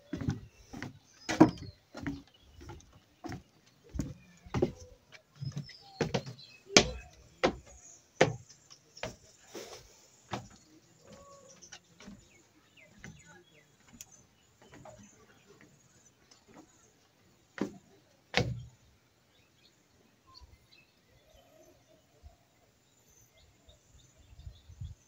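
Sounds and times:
footsteps on wooden planks: 0:00.0 - 0:18.8
birds chirping: 0:00.0 - 0:25.0.

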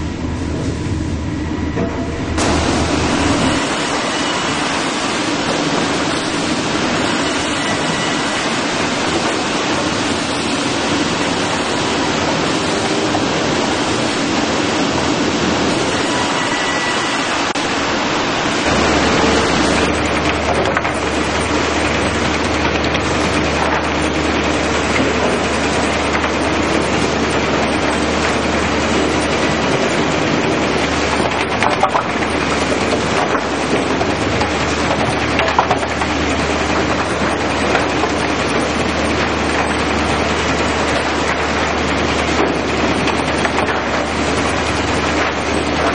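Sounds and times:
sawmill conveyors running: 0:00.0 - 0:45.9
low steady hum: 0:18.6 - 0:45.9.

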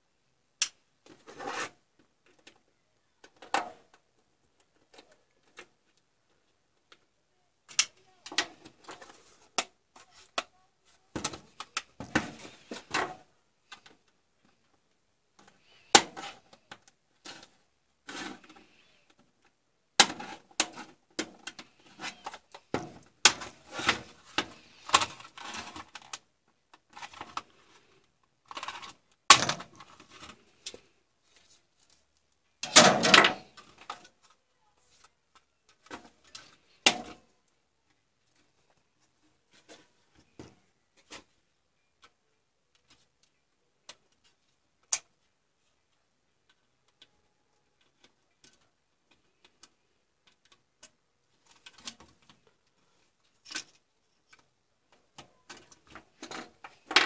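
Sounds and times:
scraping and handling noise: 0:00.6 - 0:07.1, 0:07.7 - 0:57.0.

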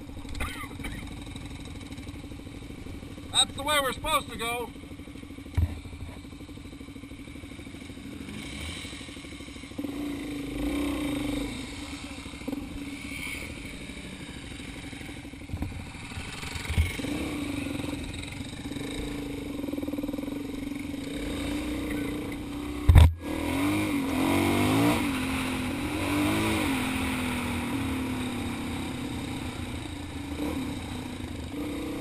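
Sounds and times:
motorcycle engine running: 0:00.0 - 0:32.0
short thumps: 0:05.5 - 0:06.2.

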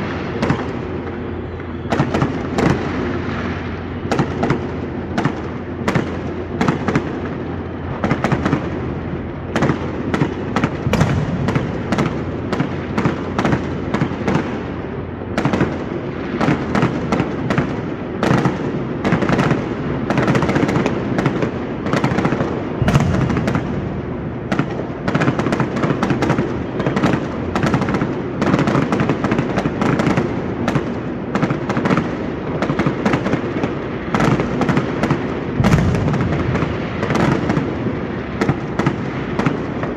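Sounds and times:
fireworks cracks and bangs: 0:00.0 - 0:39.9
rolling rumble: 0:22.7 - 0:26.4, 0:35.6 - 0:38.7.

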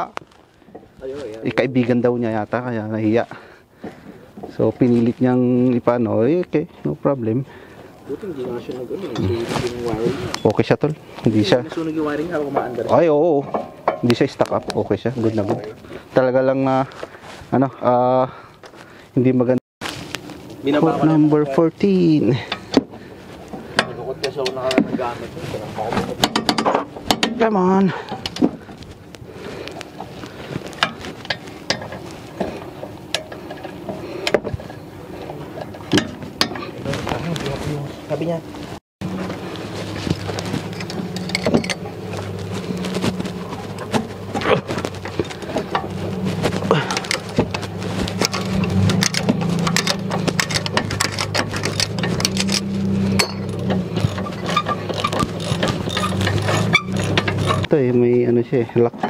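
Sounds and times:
metallic clicks of hand tools: 0:48.2 - 0:57.7
metal clinks: 0:48.3 - 0:57.6.

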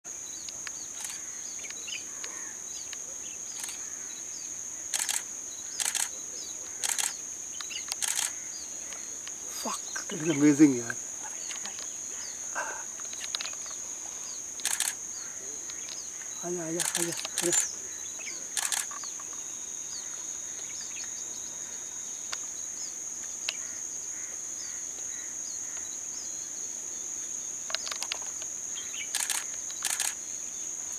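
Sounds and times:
high-pitched insect drone: 0:00.1 - 0:26.5, 0:27.2 - 0:30.9
faint bird chirps: 0:00.1 - 0:26.7
camera shutter clicks: 0:04.9 - 0:05.2, 0:05.8 - 0:06.1, 0:06.8 - 0:07.2, 0:07.9 - 0:08.4, 0:14.6 - 0:15.0, 0:16.8 - 0:17.6, 0:18.6 - 0:19.0, 0:29.1 - 0:30.2.

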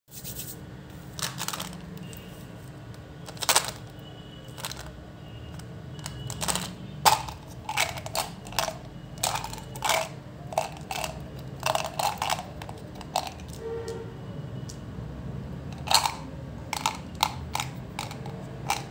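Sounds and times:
gum pellets rattling: 0:01.2 - 0:02.1, 0:03.3 - 0:03.9, 0:04.6 - 0:04.9, 0:06.0 - 0:13.6, 0:15.8 - 0:16.2, 0:16.8 - 0:18.9.

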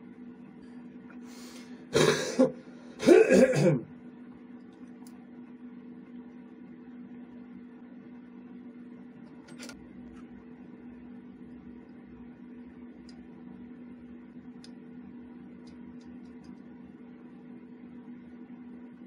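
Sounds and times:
steady low hum: 0:00.0 - 0:19.0
person clearing throat: 0:01.9 - 0:03.9.

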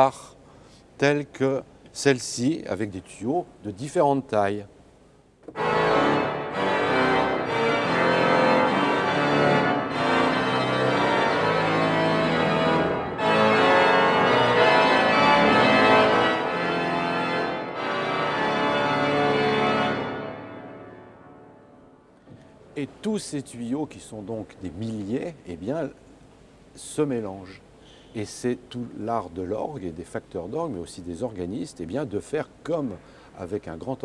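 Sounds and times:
pipe organ fanfare chords: 0:05.5 - 0:22.2.

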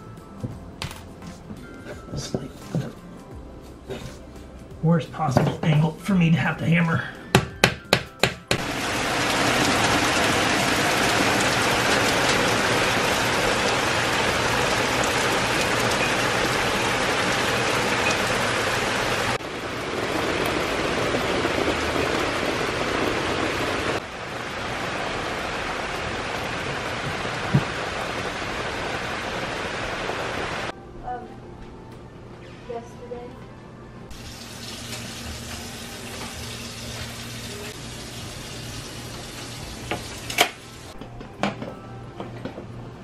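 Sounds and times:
heavy rain on deck and trees: 0:08.6 - 0:30.7, 0:34.1 - 0:41.0.

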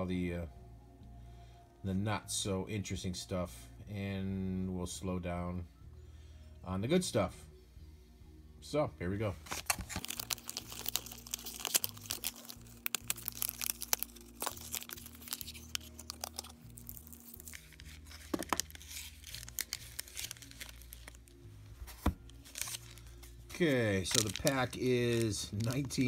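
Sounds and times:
cards rustling and tapping: 0:09.4 - 0:26.0.

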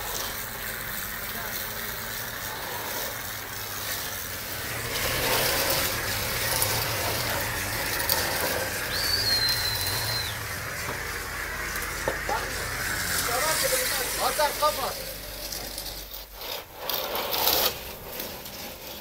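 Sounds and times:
machinery hissing and humming: 0:00.0 - 0:19.0
thin high squeal: 0:05.0 - 0:10.7.

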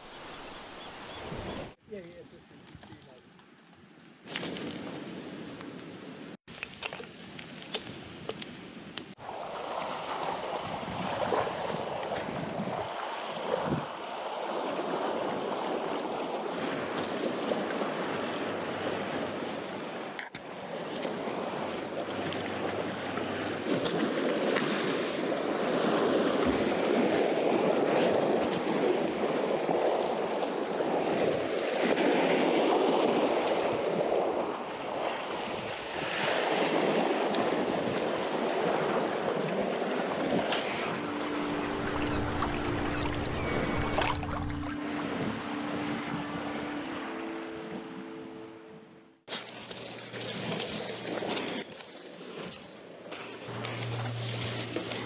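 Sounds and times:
sea waves on rocky shore: 0:09.1 - 0:48.1.

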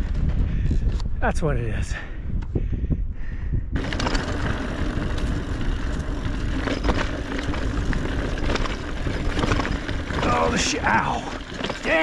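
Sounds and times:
bike tyres rumbling on dirt: 0:00.0 - 0:01.0, 0:03.7 - 0:12.0
wind noise on microphone: 0:00.0 - 0:12.0
knocks and rattles from bumps: 0:05.9 - 0:12.0.

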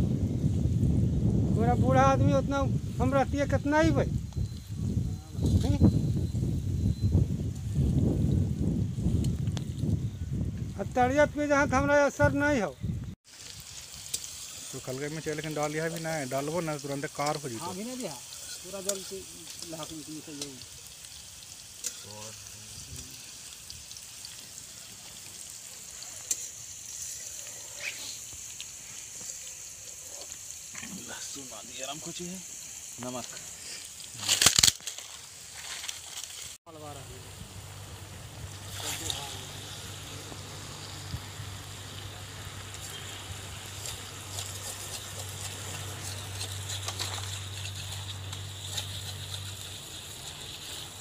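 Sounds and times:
paste sizzling in hot oil: 0:13.2 - 0:51.0
spatula stirring: 0:17.2 - 0:19.6.

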